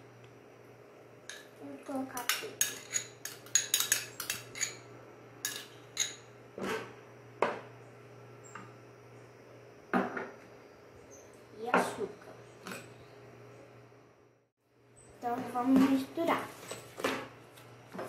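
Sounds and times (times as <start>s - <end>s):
metal spoon scraping ceramic bowl: 2.2s - 4.8s.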